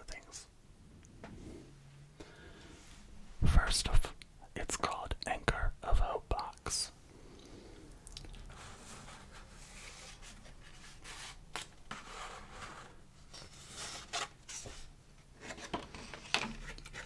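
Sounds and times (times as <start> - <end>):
paper and card rustling: 8.5 - 17.0.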